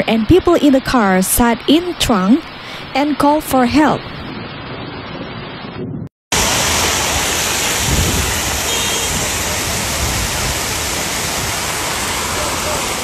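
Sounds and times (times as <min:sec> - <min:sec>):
floodwater rushing: 0:06.3 - 0:13.0
heavy rain hissing: 0:06.3 - 0:13.0.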